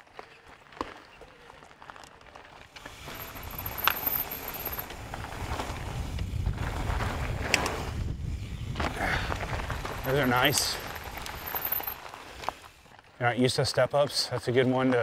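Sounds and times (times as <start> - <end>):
mountain bike rushing: 1.9 - 13.0.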